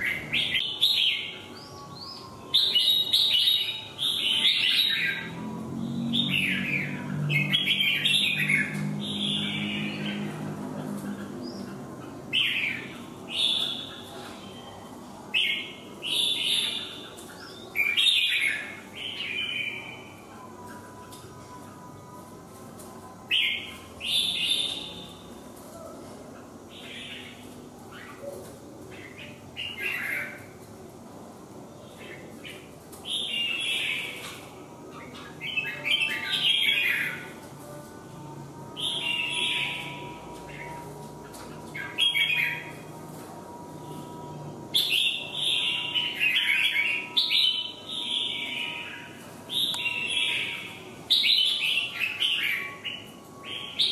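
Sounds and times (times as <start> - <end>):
bulbuls chattering song: 0.0 - 21.5, 38.6 - 53.9
bird singing bright phrases: 0.0 - 22.2, 22.8 - 30.7, 31.7 - 53.9.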